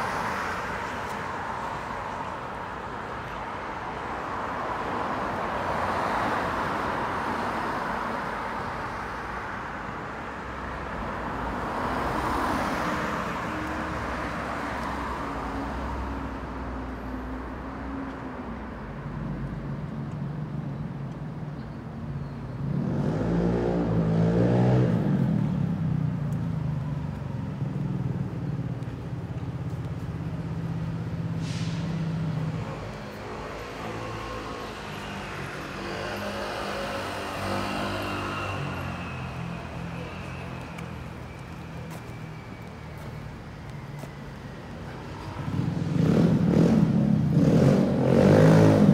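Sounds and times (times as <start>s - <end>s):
cars passing with tyre noise: 0.0s - 48.9s
vehicle engines running: 22.6s - 48.9s
short hiss: 31.4s - 32.1s.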